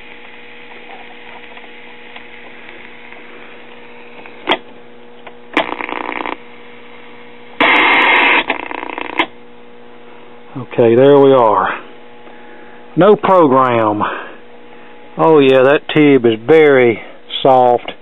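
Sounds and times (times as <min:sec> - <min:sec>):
tv speaker mains hum: 0:00.0 - 0:18.0
static hiss bursts: 0:05.5 - 0:09.4.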